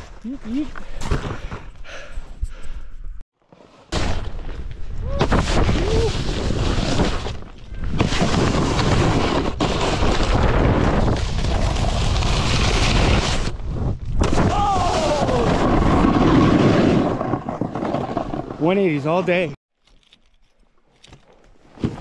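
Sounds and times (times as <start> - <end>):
snowboard scraping over snow: 3.5 - 19.5.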